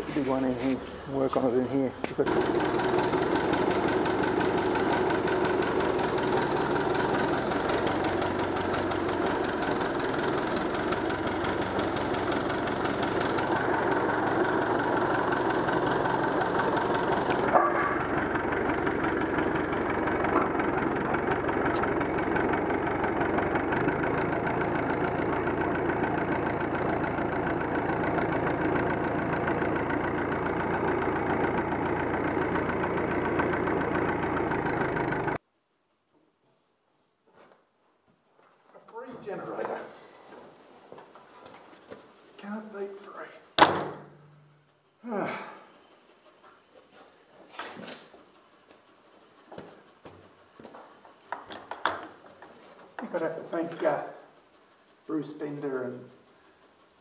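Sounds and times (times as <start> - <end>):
tractor engine running: 0.0 - 35.4, 48.2 - 57.0.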